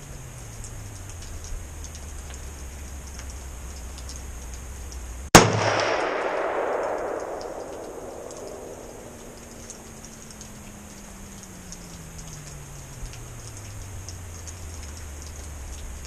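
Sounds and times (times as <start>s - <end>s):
gunshot with long echo: 5.3s - 10.0s.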